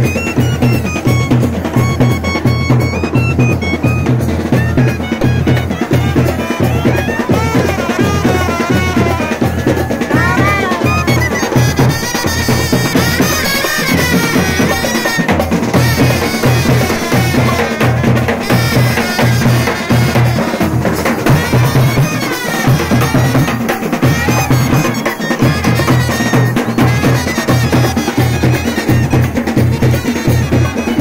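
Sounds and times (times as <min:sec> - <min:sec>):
side drums and bass drum: 0:00.0 - 0:31.0
trumpets playing melody: 0:00.0 - 0:31.0.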